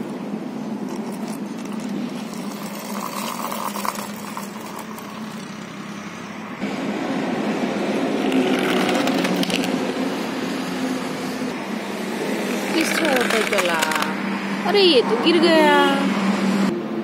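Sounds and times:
toy wheels rolling on concrete: 0.8s - 5.8s, 8.3s - 9.9s, 12.5s - 14.2s.

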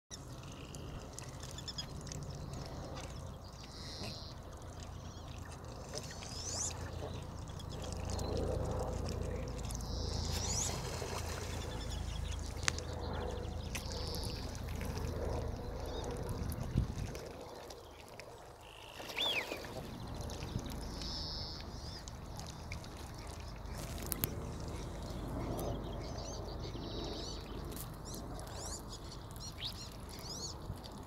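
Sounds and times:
birds chirping: 0.1s - 16.2s, 18.6s - 30.7s
wind rumble on microphone: 0.2s - 31.0s
rising bird whistles: 21.0s - 21.6s.

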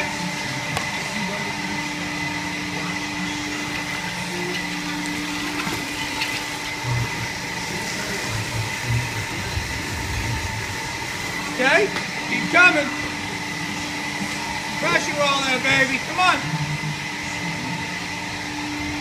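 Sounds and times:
machinery humming: 0.0s - 19.0s
water gushing from pipe: 2.9s - 17.2s.

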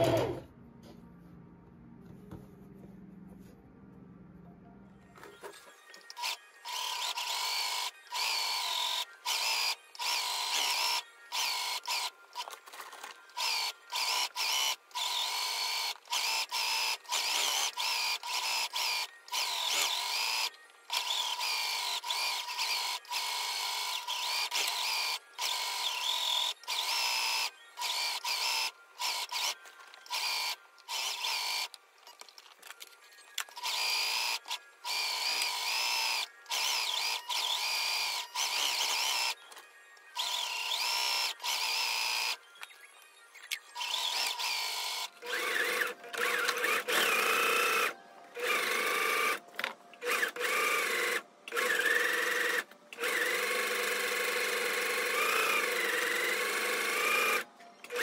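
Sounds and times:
sewing machine stitching: 0.0s - 0.4s.

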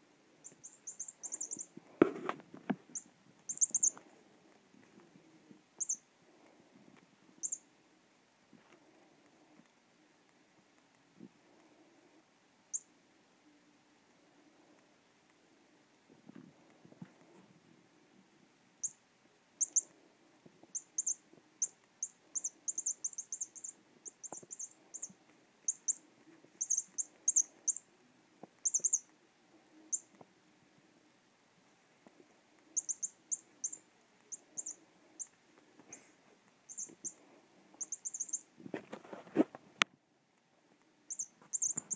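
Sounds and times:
toy electronic chirps: 0.4s - 1.7s, 2.9s - 4.0s, 5.8s - 6.0s, 7.4s - 7.6s, 18.8s - 19.0s, 19.6s - 19.8s, 20.7s - 26.0s, 26.6s - 27.8s, 28.6s - 29.1s, 32.8s - 35.3s, 36.7s - 37.2s, 37.8s - 38.5s, 41.1s - 41.9s.

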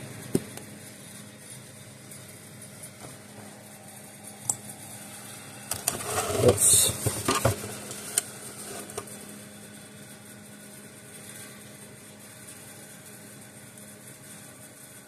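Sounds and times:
plastic housing knocking and rattling: 5.8s - 7.9s.

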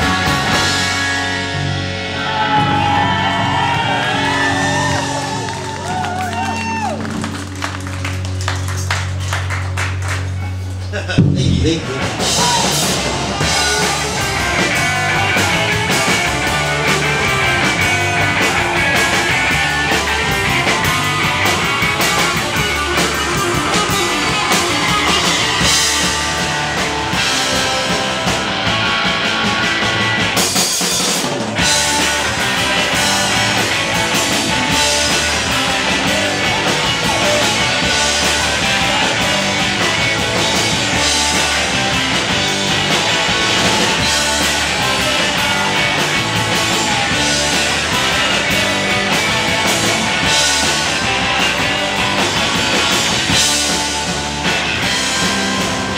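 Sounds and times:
distorted electric guitars: 0.0s - 55.9s
drum kit: 0.0s - 55.9s
electric bass: 0.0s - 55.9s.

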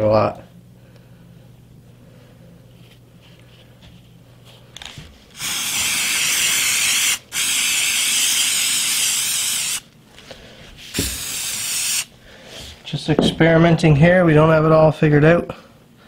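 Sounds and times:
spray paint can hissing: 5.4s - 9.9s, 10.9s - 12.1s
thump: 11.0s - 11.2s.

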